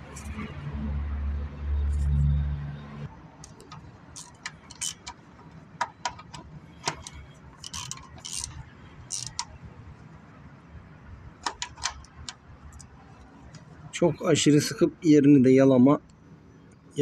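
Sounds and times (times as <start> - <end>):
metallic rattle: 3.4 - 9.6, 11.4 - 12.9
wrench clicking on metal: 3.4 - 9.6, 11.4 - 12.9.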